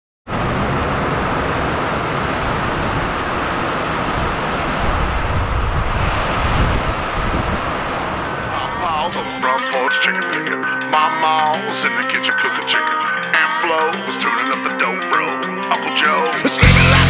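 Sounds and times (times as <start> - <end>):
heavy rain pouring: 0.3 - 9.1
wind buffeting microphone: 0.3 - 9.2.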